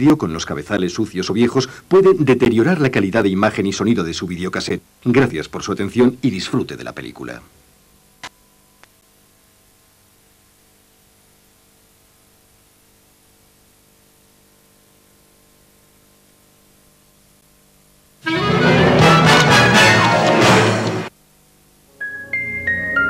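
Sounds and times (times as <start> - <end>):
mains hum: 0.0 - 23.0
tape hiss: 0.0 - 23.0
loud music: 18.2 - 21.1.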